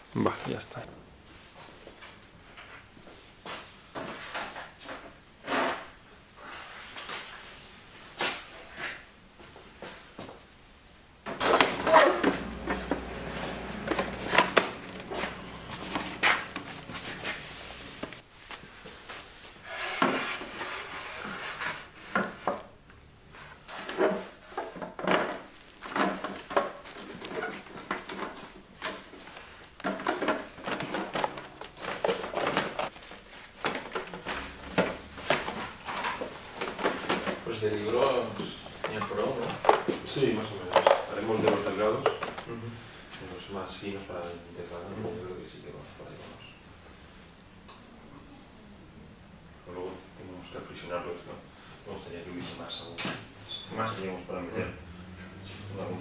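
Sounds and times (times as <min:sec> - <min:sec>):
objects clunking on metal shelves: 0:11.3 - 0:18.2, 0:23.7 - 0:32.9.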